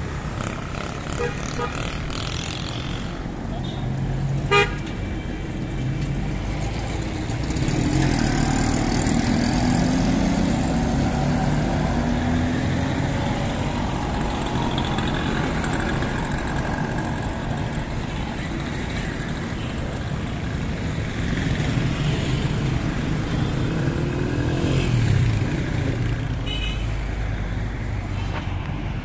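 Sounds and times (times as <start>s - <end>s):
street traffic engines: 0.0s - 29.0s
car horn beep: 4.5s - 4.8s.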